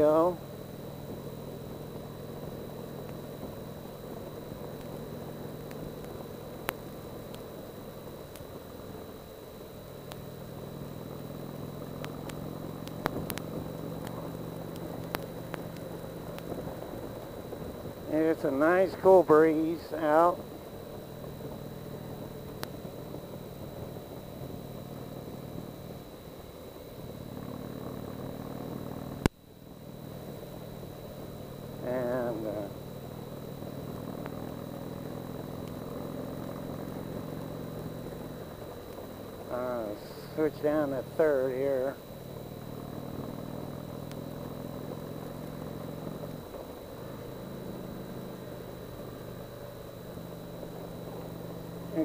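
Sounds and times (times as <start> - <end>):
motorcycle engine running: 0.0 - 52.0
thin high whine: 0.0 - 52.0
sharp clicks: 12.0 - 16.6.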